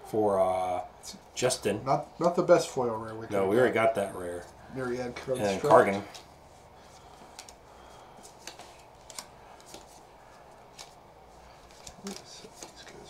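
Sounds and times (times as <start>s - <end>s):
cards clicking and tapping: 7.2s - 7.6s, 8.2s - 13.0s.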